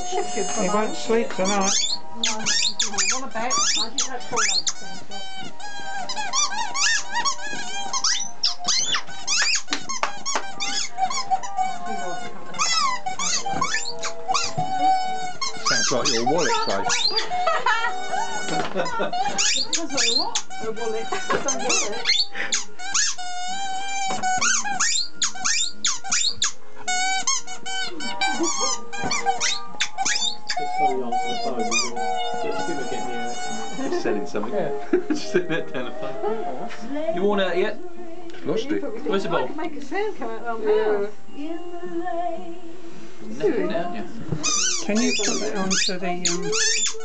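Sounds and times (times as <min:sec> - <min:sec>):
high squeaks: 0:00.0 - 0:34.0, 0:44.4 - 0:47.0
dog chewing squeaky ball: 0:00.0 - 0:34.8, 0:44.3 - 0:47.0.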